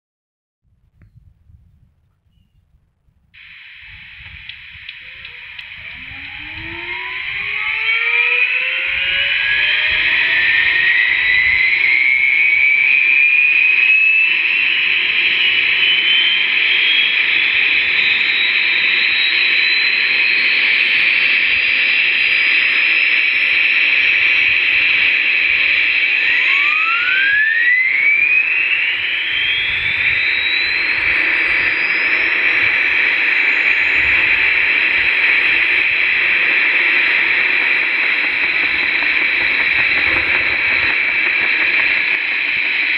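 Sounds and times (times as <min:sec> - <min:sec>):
turbine whine through loudspeaker: 0:03.2 - 0:42.9
loud hiss: 0:03.4 - 0:12.4, 0:24.4 - 0:42.9.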